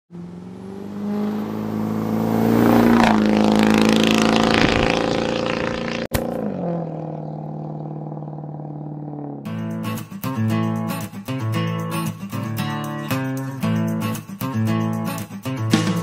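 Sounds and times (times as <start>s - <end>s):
diesel truck accelerating past: 0.1s - 9.4s.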